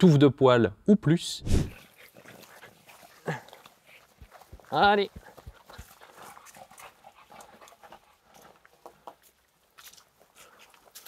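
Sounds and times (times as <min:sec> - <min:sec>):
dog panting: 0:01.8 - 0:09.4
light scuffs and ticks: 0:01.8 - 0:11.0.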